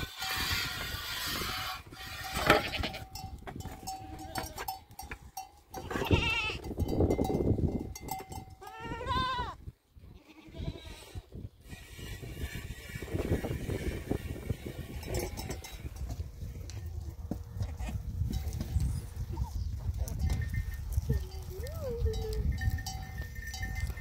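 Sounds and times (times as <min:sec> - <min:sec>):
goats bleating: 0:00.0 - 0:03.2, 0:05.8 - 0:06.7, 0:08.6 - 0:09.6, 0:10.2 - 0:11.2.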